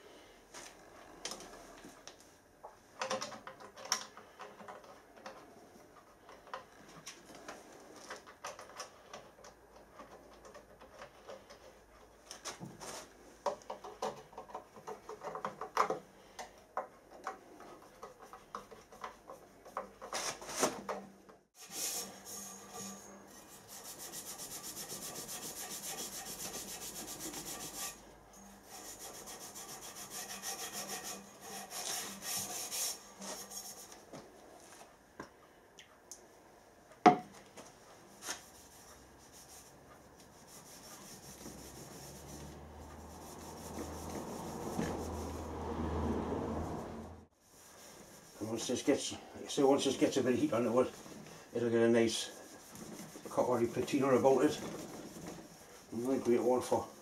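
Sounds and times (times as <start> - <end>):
scratchy rubbing of metal pipe: 21.6 - 34.1, 38.2 - 45.6, 47.4 - 57.0.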